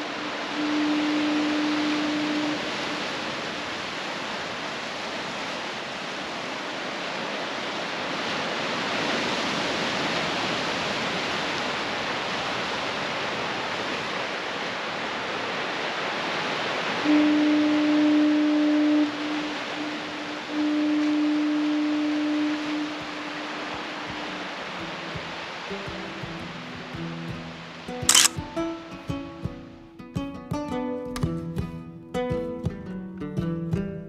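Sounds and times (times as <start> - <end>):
foghorn blasts: 0.0 - 4.9, 16.4 - 25.8
ocean surf: 0.0 - 30.0.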